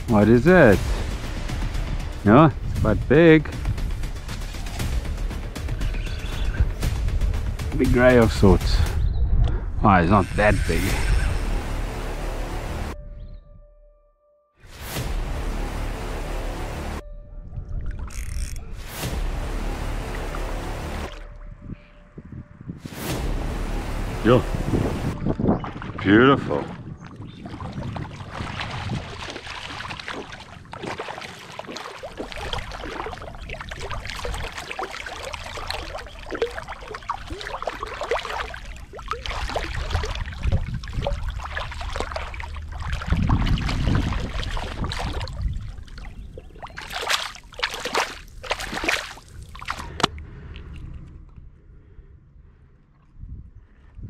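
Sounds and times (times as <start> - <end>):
water splashing and sloshing: 0.0 - 9.6, 17.6 - 21.6, 22.8 - 52.1
sharp water slaps: 25.6 - 50.2.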